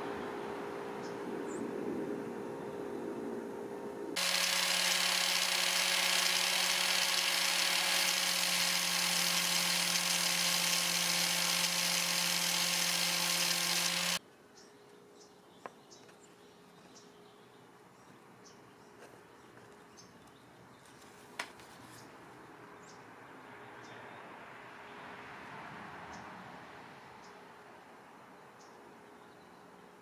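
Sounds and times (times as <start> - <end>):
grinder motor humming: 4.2 - 14.2
grinding hiss: 4.2 - 14.2.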